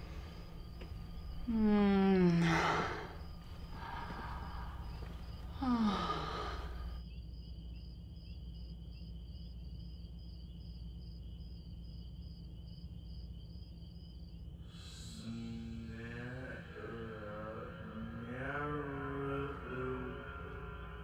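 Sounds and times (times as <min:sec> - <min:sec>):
breathy sigh: 0:00.0 - 0:07.0
low hum: 0:00.0 - 0:07.0
pulsing insect-like trill: 0:00.0 - 0:14.4.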